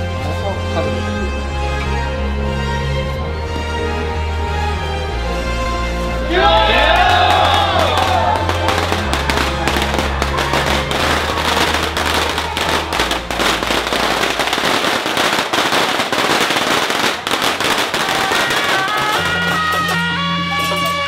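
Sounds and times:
music: 0.0s - 21.0s
firecrackers popping: 7.3s - 21.0s.

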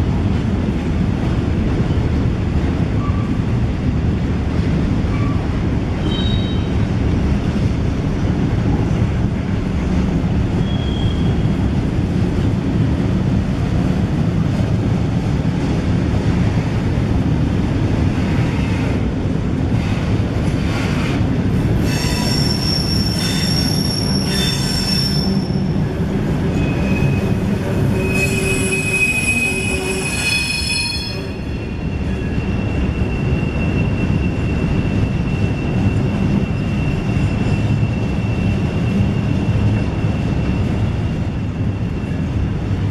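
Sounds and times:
train wheels rumbling on rail: 0.0s - 42.9s
wheels squealing: 21.8s - 25.8s, 26.5s - 42.3s.

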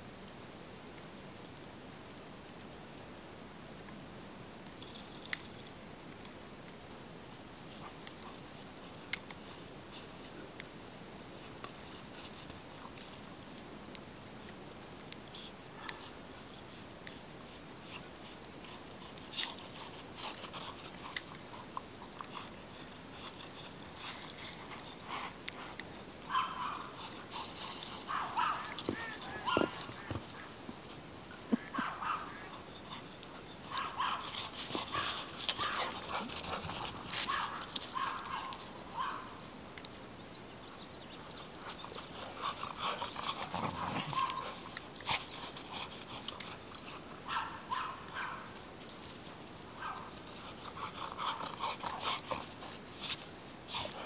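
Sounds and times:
dog yipping and whining: 28.1s - 30.6s.

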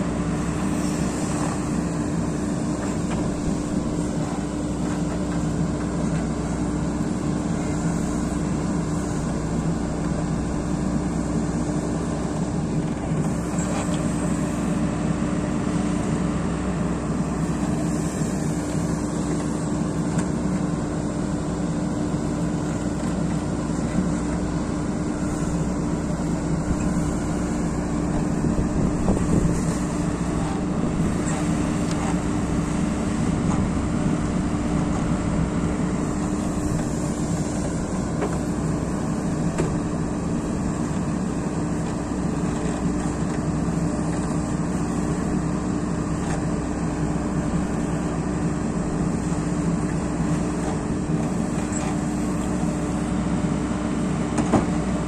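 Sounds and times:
diesel engine running: 0.0s - 55.0s
backhoe arm digging: 11.8s - 14.8s, 17.0s - 53.1s.

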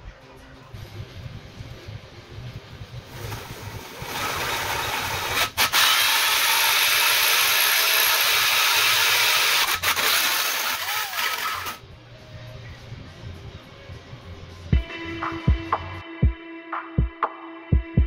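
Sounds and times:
hole saw grinding through tube: 3.2s - 11.8s.

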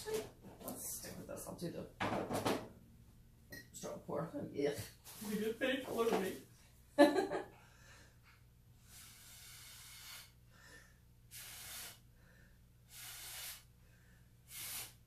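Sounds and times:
airy puffs through a straw: 8.9s - 10.4s, 11.3s - 12.0s, 12.9s - 13.7s, 14.5s - 15.0s.

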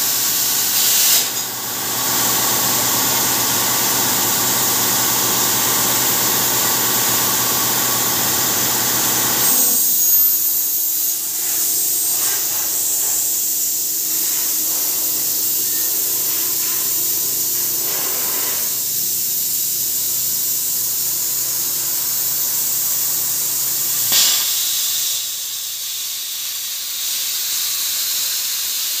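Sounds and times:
plasma torch hissing: 0.0s - 29.0s
multi-tone hum: 1.5s - 19.3s.

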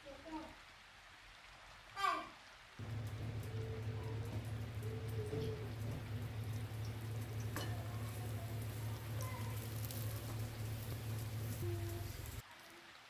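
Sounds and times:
steady low hum: 2.8s - 12.4s
wooden spatula tapping wok: 2.8s - 12.4s
food sizzling in oil: 2.8s - 12.7s.

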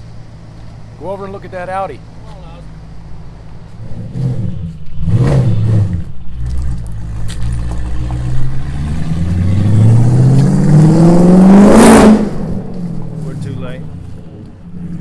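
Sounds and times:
car engine accelerating hard: 2.4s - 15.0s.

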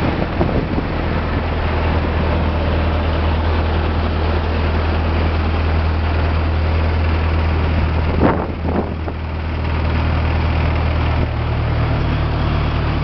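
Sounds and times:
wind noise: 0.0s - 3.5s, 7.1s - 11.6s
boat engine running: 0.0s - 13.0s
water noise: 0.0s - 13.0s.

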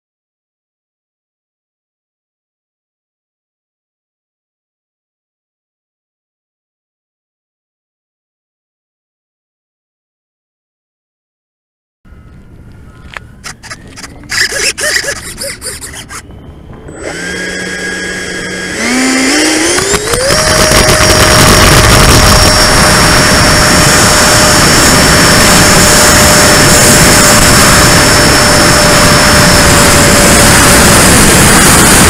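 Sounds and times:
electric ducted fan whine: 12.1s - 32.0s
rushing air noise: 13.4s - 32.0s.

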